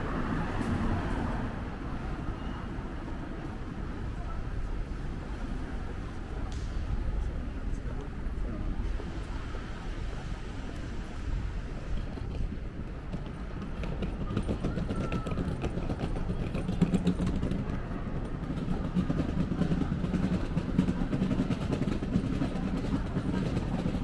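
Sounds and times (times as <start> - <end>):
traffic noise: 0.0 - 24.0.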